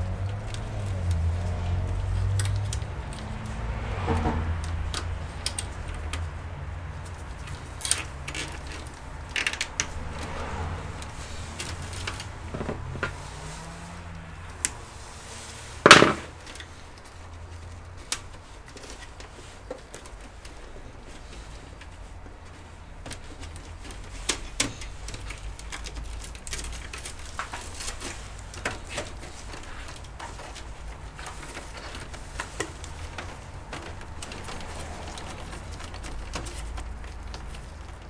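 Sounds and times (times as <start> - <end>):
cables clicking and rustling: 0.0 - 38.0.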